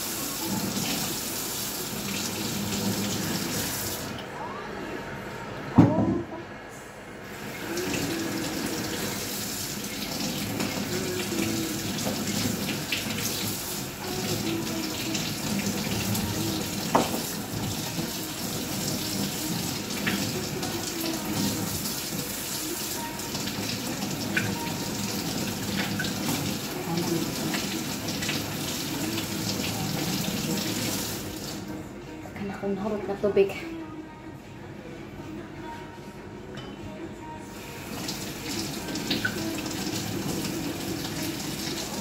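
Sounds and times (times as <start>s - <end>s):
kitchen tap running: 0.0s - 4.2s, 7.4s - 31.7s, 37.8s - 42.0s.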